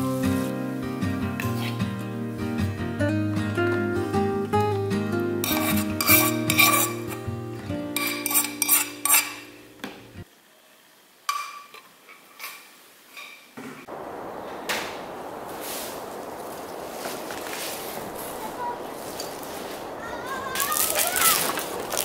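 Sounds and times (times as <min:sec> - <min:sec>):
background music: 0:00.0 - 0:10.2
metal spoon scraping frying pan: 0:05.4 - 0:07.2, 0:08.0 - 0:09.5.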